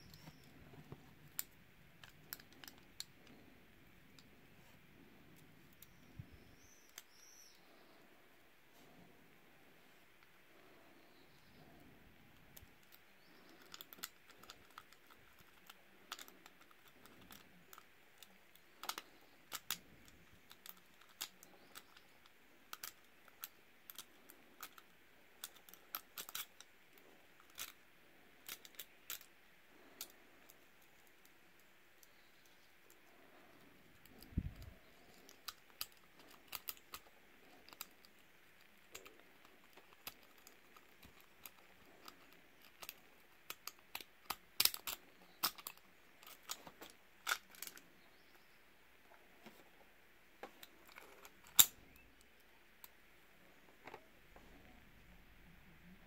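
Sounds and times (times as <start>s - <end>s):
faint metallic lock picking clicks: 34.0s - 47.8s.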